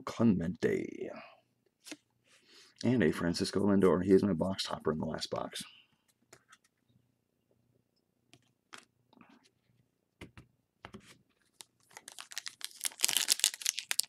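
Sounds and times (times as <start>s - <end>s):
foil wrapper crinkling and tearing: 11.5s - 14.0s.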